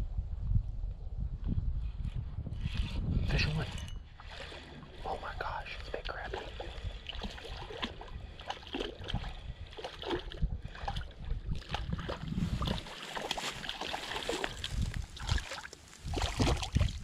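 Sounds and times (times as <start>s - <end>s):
wind on microphone: 0.0s - 17.0s
small water splashes: 4.1s - 17.0s.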